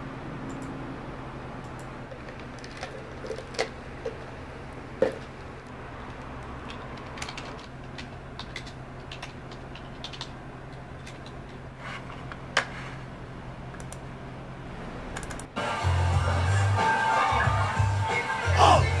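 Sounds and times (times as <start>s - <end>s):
steady low hum: 0.0s - 16.8s
keyboard keystrokes clicking: 6.2s - 10.3s, 15.2s - 15.5s.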